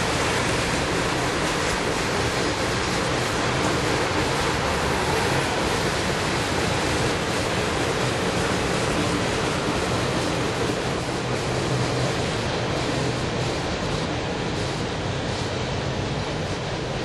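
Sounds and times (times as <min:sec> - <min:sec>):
steel wheels running on rails: 0:00.0 - 0:17.0.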